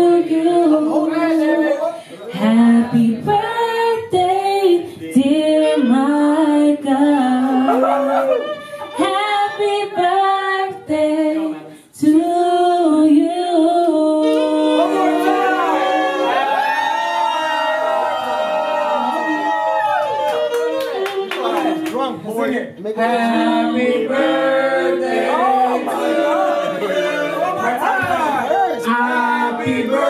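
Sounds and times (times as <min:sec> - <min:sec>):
a cappella singing voices: 0:00.0 - 0:16.5, 0:22.9 - 0:30.0.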